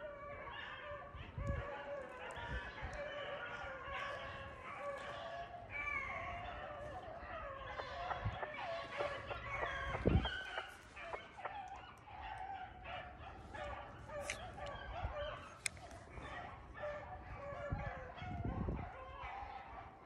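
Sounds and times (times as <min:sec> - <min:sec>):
dogs baying: 0:00.0 - 0:20.0.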